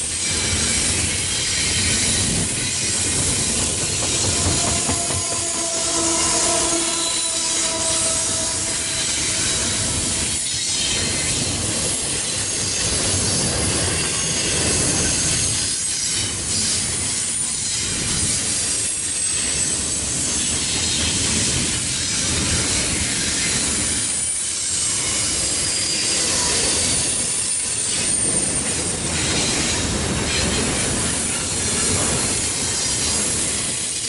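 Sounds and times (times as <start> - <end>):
freight train rumbling: 0.0 - 34.0
high-pitched wheel squeals: 0.2 - 11.4.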